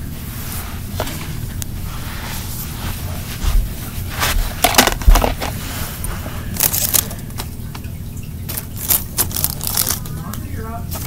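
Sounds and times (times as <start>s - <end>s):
hand rustling on floor: 0.3s - 7.1s.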